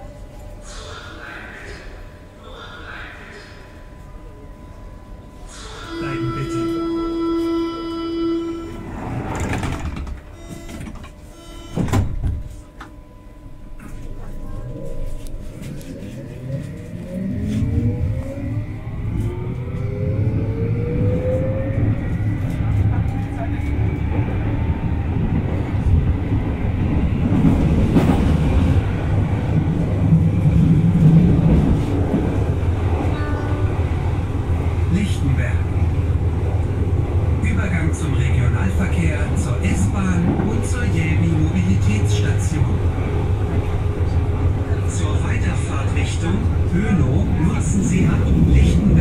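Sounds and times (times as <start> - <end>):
low hum: 0.0 - 39.7
door warning tone: 6.0 - 15.4
sliding doors running shut: 8.9 - 12.5
train wheels rumbling: 14.1 - 49.0.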